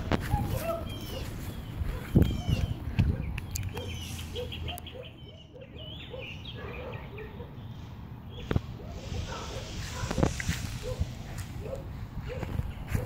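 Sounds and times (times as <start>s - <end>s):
bird chirping: 0.3s - 8.6s.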